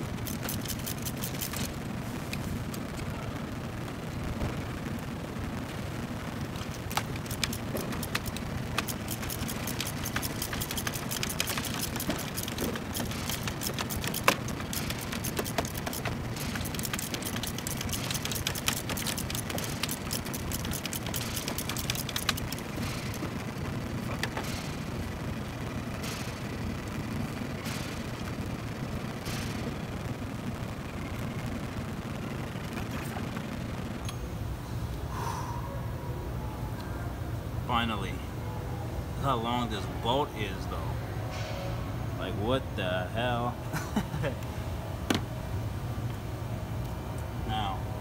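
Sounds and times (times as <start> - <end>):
hand ratchet clicking: 0.1 - 1.7, 6.8 - 23.4.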